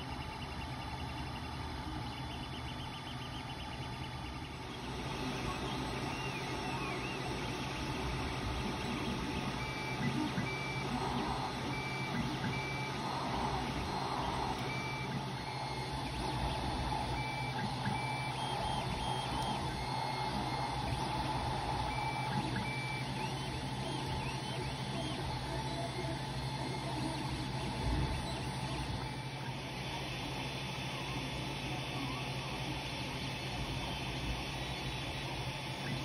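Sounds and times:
cooling fans humming: 0:00.0 - 0:36.0
stepper motor beeping tones: 0:00.0 - 0:36.0.

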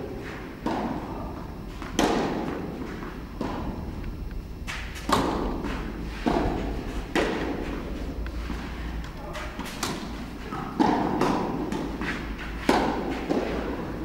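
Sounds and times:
tennis ball bouncing: 0:00.6 - 0:01.0, 0:01.8 - 0:03.8, 0:04.9 - 0:13.9
tennis ball hit by rackets: 0:01.9 - 0:02.6, 0:04.7 - 0:08.0, 0:09.6 - 0:13.8.

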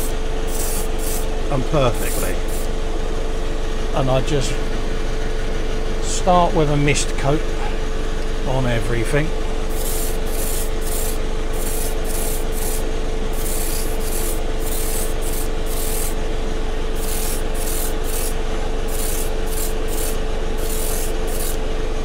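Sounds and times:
airbrush hissing: 0:00.0 - 0:01.3, 0:02.0 - 0:02.7, 0:09.7 - 0:16.2, 0:17.0 - 0:21.6
mechanical hum: 0:00.0 - 0:22.0.

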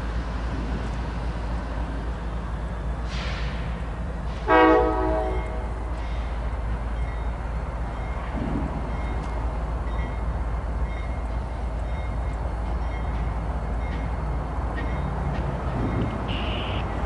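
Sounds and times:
diesel locomotive rumbling: 0:00.0 - 0:17.0
air horn blast: 0:04.4 - 0:05.6, 0:16.3 - 0:16.9.

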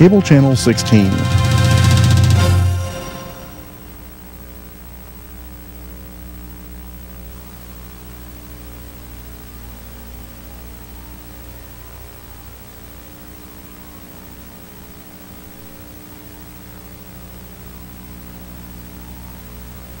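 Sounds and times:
thin high whine: 0:00.0 - 0:09.2
electrical mains hum: 0:00.0 - 0:20.0
tape hiss: 0:00.0 - 0:20.0.

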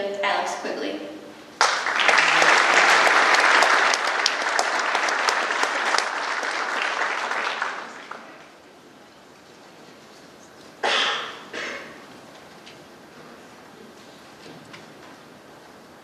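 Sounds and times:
audience applause: 0:01.6 - 0:08.8.

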